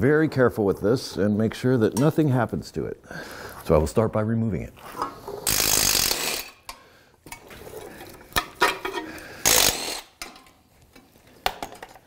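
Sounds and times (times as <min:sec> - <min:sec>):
cordless ratchet spinning: 0:05.5 - 0:06.6, 0:09.4 - 0:10.1.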